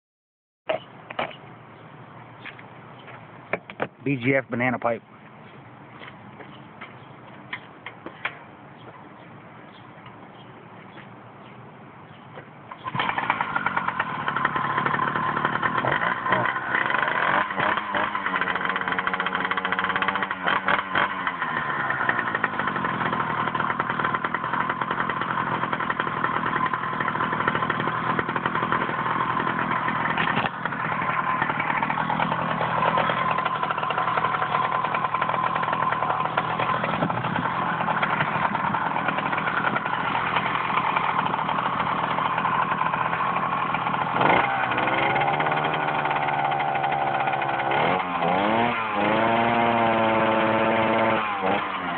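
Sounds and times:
two-stroke engine idling and revving: 0:12.7 - 0:51.9.

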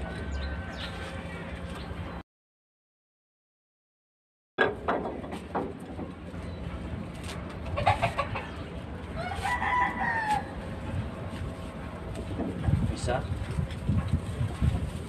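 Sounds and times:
rooster crowing: 0:00.0 - 0:01.7, 0:09.2 - 0:10.6
rope clicking and rustling: 0:05.3 - 0:07.8, 0:11.3 - 0:15.0.

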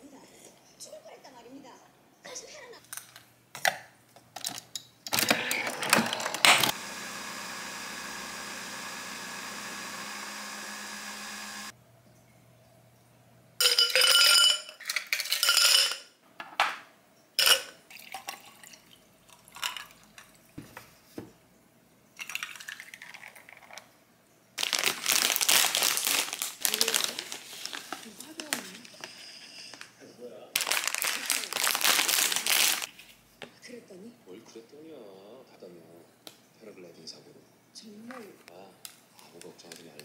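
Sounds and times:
small appliance humming: 0:05.1 - 0:11.8
dishes and utensils clinking: 0:13.6 - 0:16.2, 0:17.4 - 0:17.8.

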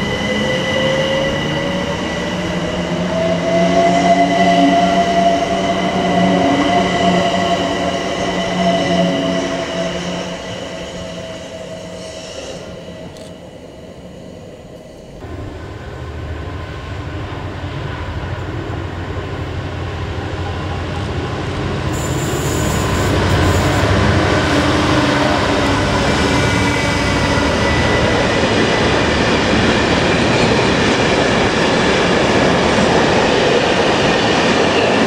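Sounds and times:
diesel locomotive engine: 0:00.0 - 0:35.0
high wheel squeal: 0:21.9 - 0:23.9
electric train motors whining: 0:21.9 - 0:24.3.

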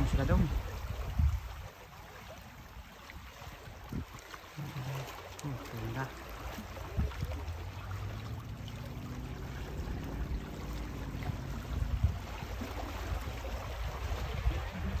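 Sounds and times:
water washing against rocks: 0:00.0 - 0:15.0
steady low rumble: 0:06.9 - 0:15.0.

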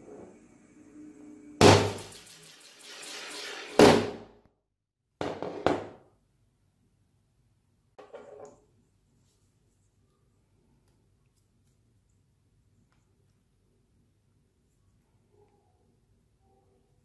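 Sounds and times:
fidget spinner whirring: 0:01.9 - 0:03.9.

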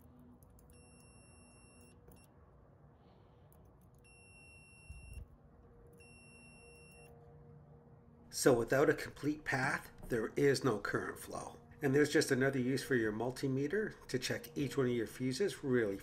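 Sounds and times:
multimeter continuity beeps: 0:00.7 - 0:02.3, 0:04.0 - 0:05.2, 0:06.0 - 0:07.1.

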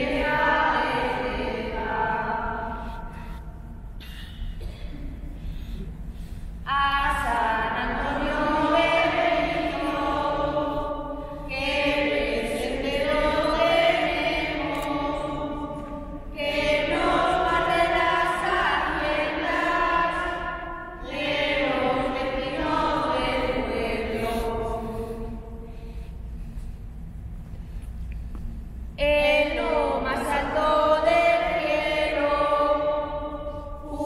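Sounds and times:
women singing a carol: 0:00.0 - 0:03.1, 0:06.7 - 0:25.7, 0:29.0 - 0:34.0.

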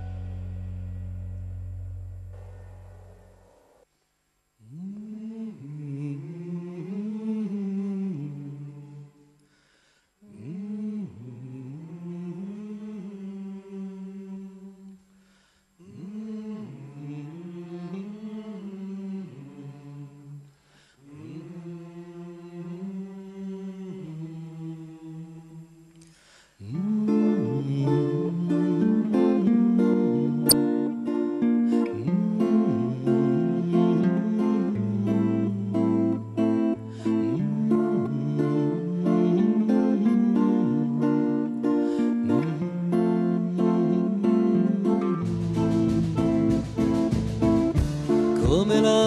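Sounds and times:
band with strummed acoustic guitar: 0:00.0 - 0:01.0, 0:26.9 - 0:49.0
man singing unaccompanied: 0:04.6 - 0:09.3, 0:10.2 - 0:15.0, 0:15.8 - 0:25.9, 0:26.6 - 0:49.0.

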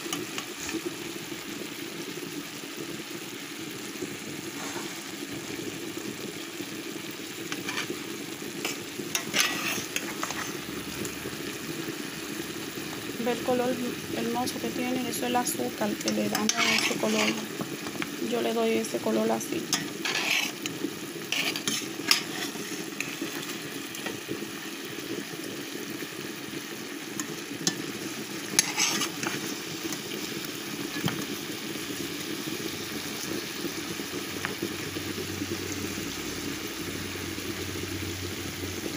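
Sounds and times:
meat sizzling in a pot: 0:00.0 - 0:38.9
spoon scraping pot: 0:07.5 - 0:08.0, 0:08.6 - 0:10.7, 0:15.9 - 0:18.1, 0:19.7 - 0:24.2, 0:28.5 - 0:30.0.

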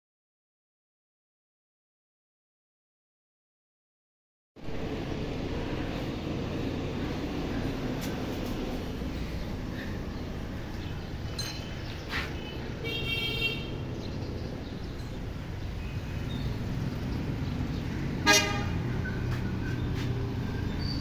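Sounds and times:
low rumble of street traffic: 0:04.6 - 0:21.0
vehicle horns: 0:12.1 - 0:13.9, 0:18.2 - 0:19.2.

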